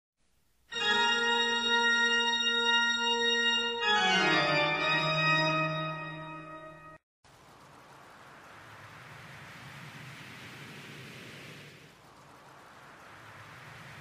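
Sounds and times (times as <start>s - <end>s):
electronic keyboard chord: 0.7s - 7.0s.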